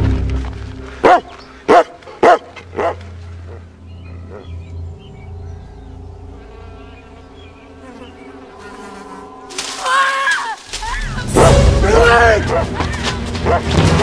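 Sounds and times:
insect-like buzzing drone: 3.0s - 11.8s
low rumble: 10.6s - 14.0s.

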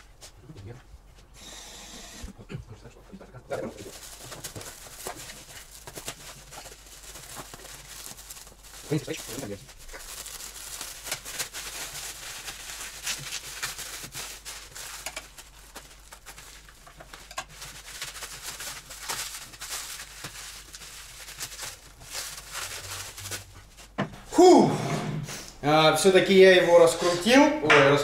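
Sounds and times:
plastic wrap crinkling and tearing: 3.6s - 24.0s.

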